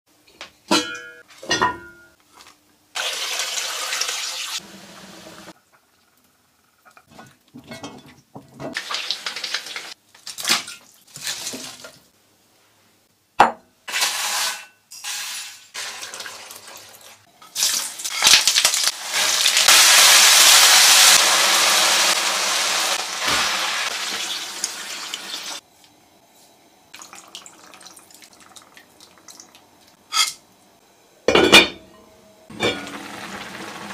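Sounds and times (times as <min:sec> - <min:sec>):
cookware knocking and clinking: 0:00.7 - 0:02.1, 0:07.1 - 0:08.8, 0:31.3 - 0:33.0.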